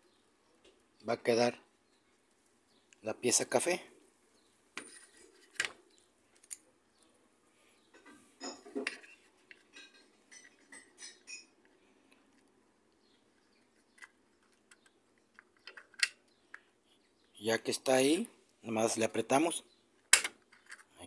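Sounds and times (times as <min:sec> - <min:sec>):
plastic and metal parts clicking: 0:13.6 - 0:16.7, 0:20.0 - 0:21.0.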